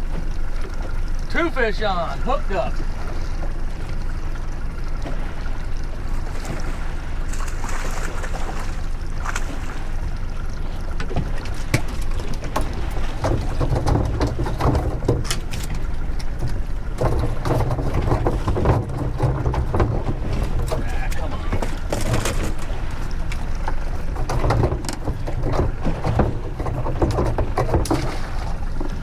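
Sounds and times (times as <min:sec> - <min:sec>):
outboard motor running: 0:00.0 - 0:29.0
water around boat: 0:00.0 - 0:29.0
wind: 0:00.0 - 0:29.0
sharp knocks and rattles: 0:11.0 - 0:29.0.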